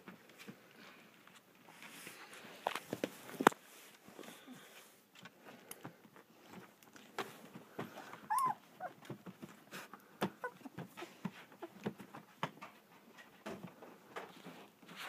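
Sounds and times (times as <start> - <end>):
puppies scuffing on bedding: 5.2 - 15.0
puppy whimpering squeal: 8.2 - 9.0, 10.4 - 10.7.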